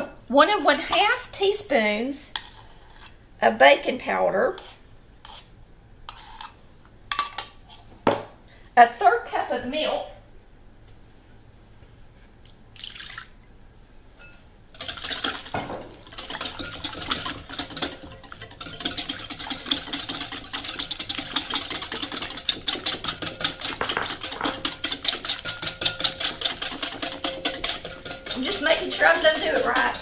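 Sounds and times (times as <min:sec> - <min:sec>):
whisk clicking against glass bowl: 0:16.1 - 0:30.0.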